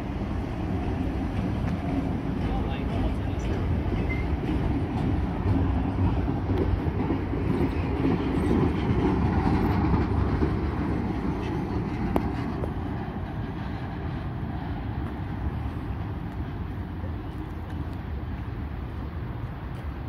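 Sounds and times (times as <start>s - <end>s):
train wheels rumbling on rails: 0.0s - 20.0s.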